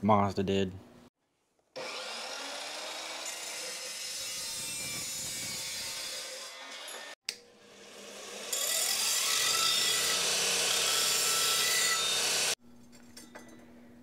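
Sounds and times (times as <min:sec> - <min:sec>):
belt grinder grinding metal tube: 0:01.8 - 0:12.6.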